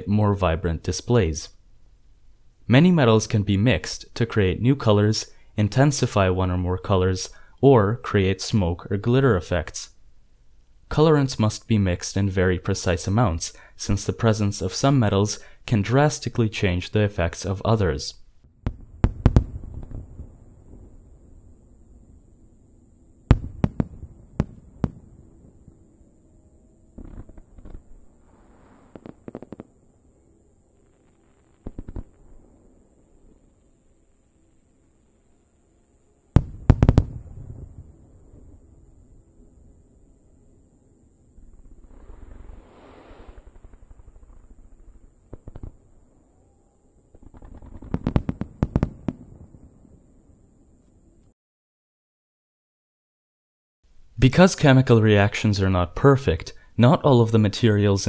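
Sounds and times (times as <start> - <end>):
fireworks bangs: 18.6 - 21.0, 23.3 - 25.2, 27.0 - 29.7, 31.5 - 32.4, 36.4 - 38.4, 41.4 - 46.0, 47.1 - 49.8
fireworks crackling pops: 18.6 - 21.0, 23.3 - 25.1, 27.0 - 29.8, 30.8 - 32.4, 36.4 - 37.9, 41.4 - 46.1, 47.1 - 49.8
fireworks shells bursting: 27.0 - 29.7, 31.1 - 32.2, 36.4 - 37.3, 47.1 - 49.2.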